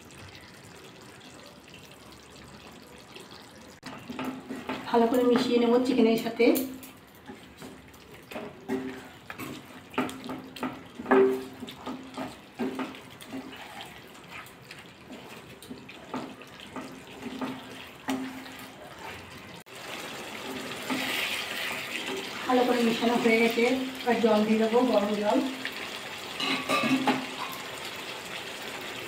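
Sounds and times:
spatula stirring thick gravy: 0.3s - 6.0s, 7.1s - 24.2s.

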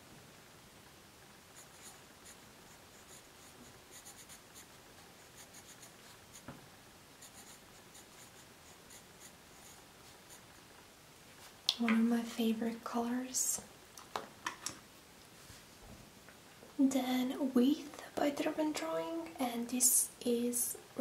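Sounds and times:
pencil scratching on paper: 1.6s - 6.4s, 7.2s - 10.5s.

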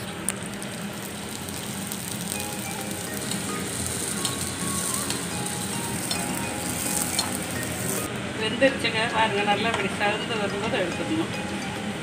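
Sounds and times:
pastry sizzling in hot oil: 0.0s - 8.1s.

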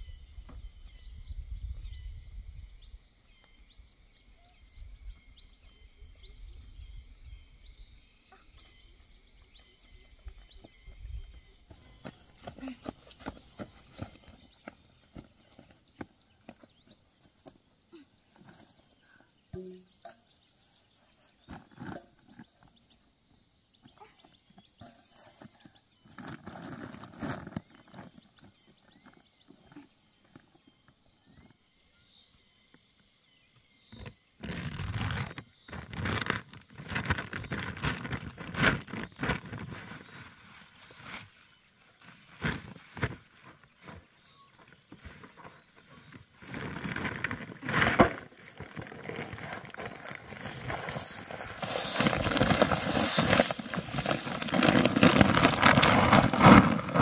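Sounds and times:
faint bird chirps: 0.0s - 47.8s
sack rustling: 34.4s - 41.4s, 46.3s - 57.0s.

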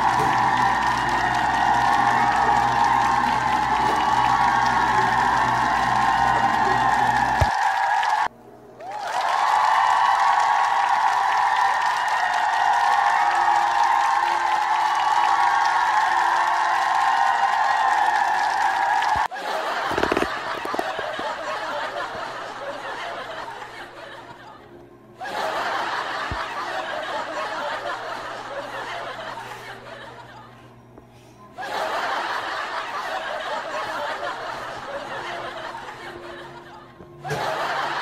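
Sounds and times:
laughter: 19.3s - 30.8s, 31.5s - 38.0s.

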